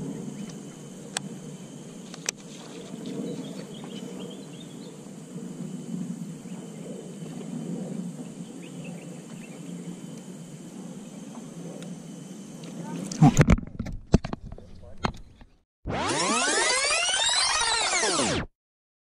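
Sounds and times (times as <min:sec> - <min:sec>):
faint high chirping calls: 0:02.7 - 0:05.0.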